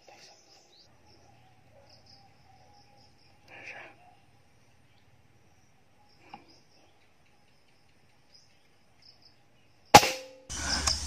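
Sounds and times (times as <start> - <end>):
faint bird chirps: 0.0 - 10.0
faint insect chirps: 0.0 - 11.0
rifle shot: 9.9 - 10.5.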